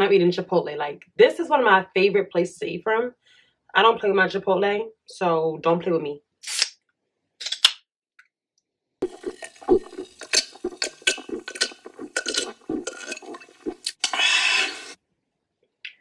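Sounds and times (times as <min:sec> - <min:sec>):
person swallowing and gulping: 0:09.0 - 0:15.0.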